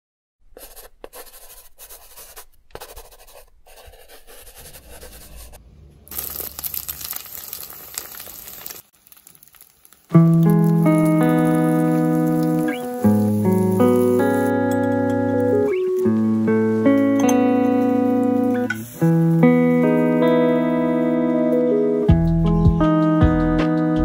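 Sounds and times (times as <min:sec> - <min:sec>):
pen writing on paper: 0:00.6 - 0:05.6
oil hissing in hot pan: 0:06.1 - 0:14.6, 0:18.2 - 0:20.0
music with held notes: 0:10.2 - 0:24.0.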